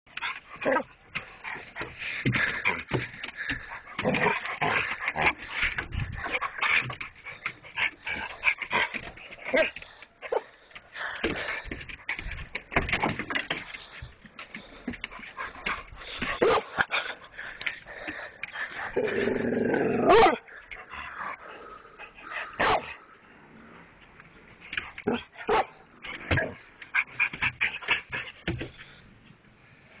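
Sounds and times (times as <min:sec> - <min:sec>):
dogs barking and yipping: 0:15.2 - 0:19.0, 0:20.0 - 0:21.1, 0:22.2 - 0:23.1, 0:25.0 - 0:28.5.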